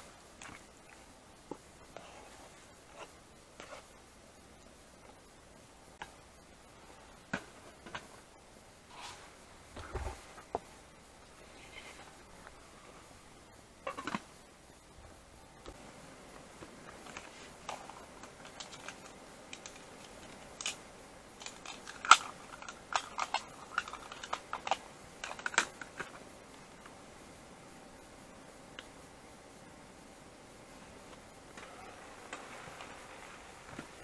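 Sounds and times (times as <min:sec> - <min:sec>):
camp cooking gear clicking: 0:16.9 - 0:20.8, 0:21.4 - 0:26.2.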